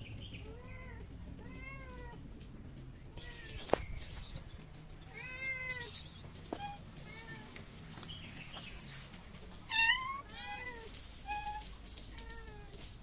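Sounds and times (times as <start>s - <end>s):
cat meowing: 5.1s - 7.6s, 9.7s - 12.9s.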